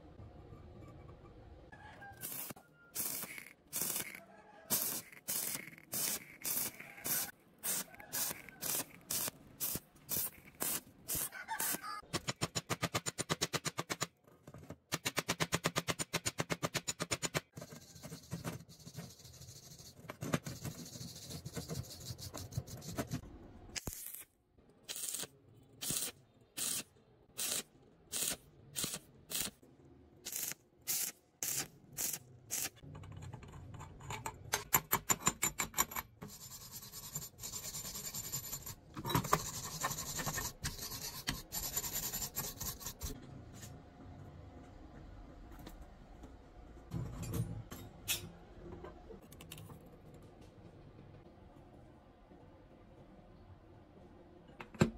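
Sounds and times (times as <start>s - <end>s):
stick-welding crackle: 2.2s - 12.0s, 23.8s - 24.3s, 30.3s - 32.8s.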